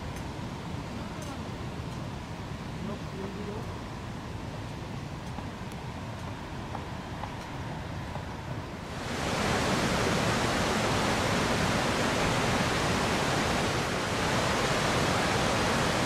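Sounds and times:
meltwater rushing: 8.8s - 16.0s.

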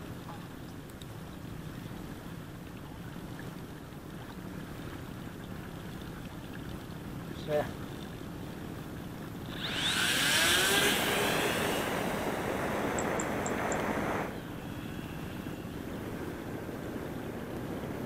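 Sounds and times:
electric model plane motor whine: 9.4s - 16.7s.

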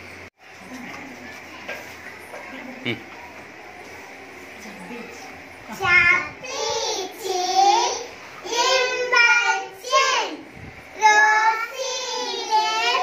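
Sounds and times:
young child singing: 11.0s - 13.0s.

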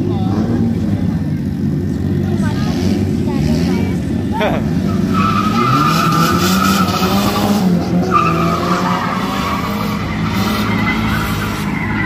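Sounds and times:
tyres squealing: 4.8s - 12.0s.

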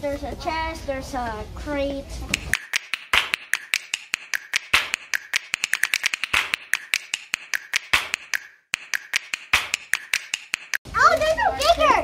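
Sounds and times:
percussive snaps and clicks: 2.3s - 10.8s.

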